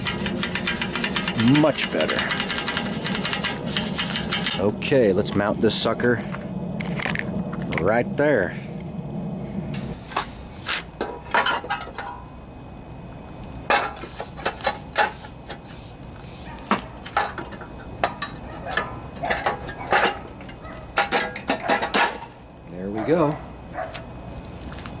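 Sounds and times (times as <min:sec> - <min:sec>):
engine cover clinking and rattling: 0:11.0 - 0:12.2, 0:16.8 - 0:22.4.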